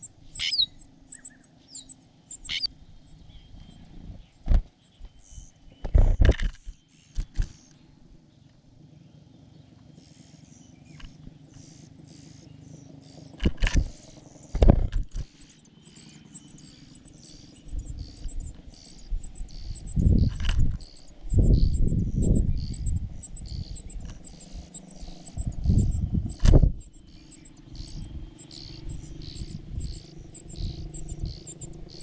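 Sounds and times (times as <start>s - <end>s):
cricket chirping: 0.0s - 3.9s, 10.0s - 32.0s.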